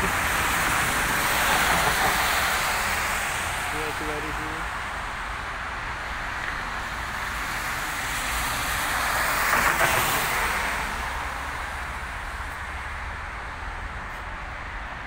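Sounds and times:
vehicle passing on wet road: 0:00.0 - 0:04.0, 0:06.0 - 0:13.3
low traffic rumble: 0:00.0 - 0:15.0.

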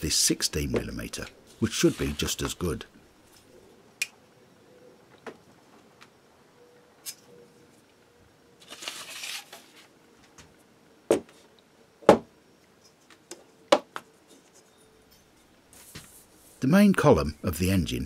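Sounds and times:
paper rustling: 0:01.6 - 0:02.6, 0:08.6 - 0:09.9.

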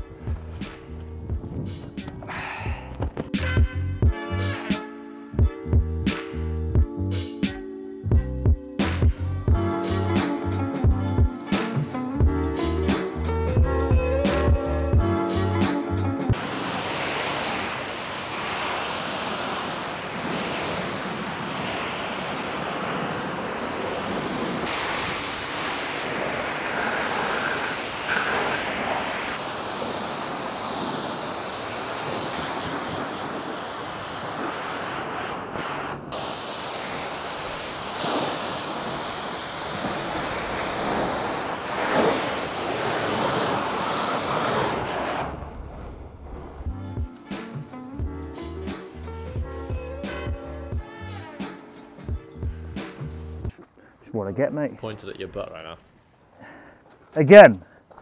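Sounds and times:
pressure washer spraying water: 0:16.3 - 0:47.6.

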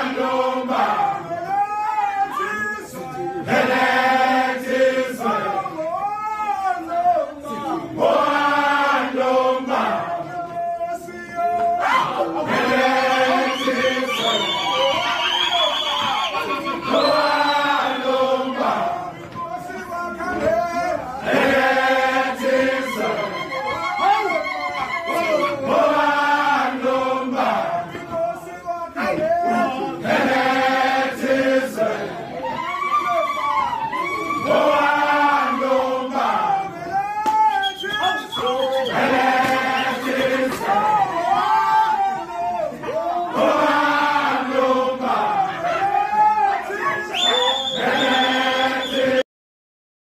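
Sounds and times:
men chanting in unison: 0:02.2 - 0:15.0, 0:25.1 - 0:32.2, 0:38.0 - 0:49.2.

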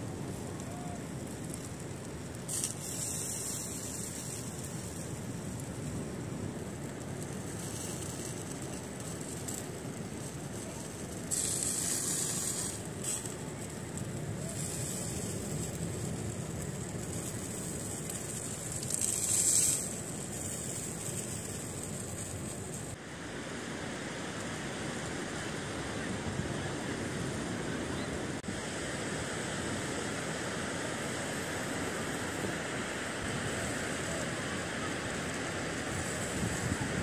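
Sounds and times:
wind: 0:00.0 - 0:37.0
sausages sizzling: 0:06.7 - 0:23.0.

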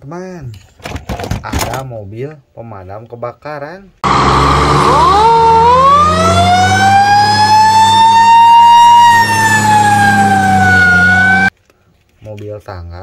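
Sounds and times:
fire truck siren wailing: 0:04.0 - 0:11.5.

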